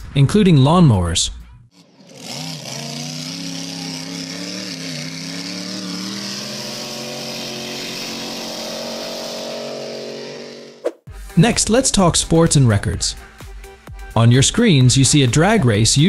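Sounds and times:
speedboat engine droning: 0:01.8 - 0:10.8.

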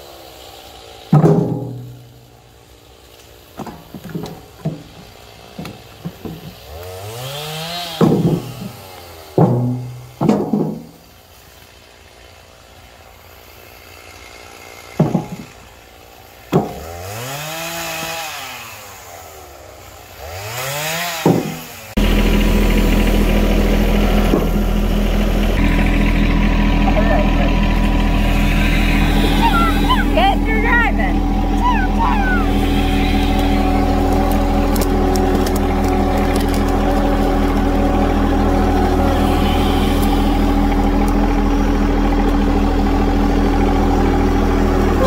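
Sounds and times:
tractor engine running: 0:00.0 - 0:18.2, 0:19.7 - 0:45.0
logs thudding into steel bucket: 0:01.1 - 0:02.4, 0:03.5 - 0:07.0, 0:07.8 - 0:11.1, 0:14.9 - 0:15.6, 0:16.5 - 0:17.0, 0:21.2 - 0:22.2, 0:23.3 - 0:26.3, 0:32.6 - 0:39.2
chainsaw revving: 0:03.8 - 0:10.2, 0:11.0 - 0:45.0.

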